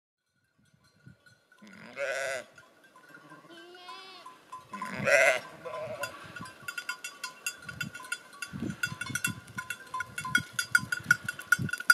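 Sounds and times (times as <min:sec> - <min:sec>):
sheep bleating: 0:01.6 - 0:02.5, 0:03.1 - 0:06.2.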